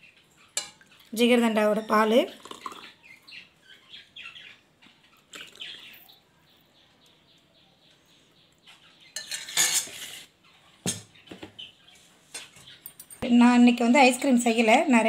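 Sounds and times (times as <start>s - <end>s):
milk pouring into a glass: 2.3s - 3.0s, 5.3s - 5.8s
small clinks: 12.4s - 13.2s.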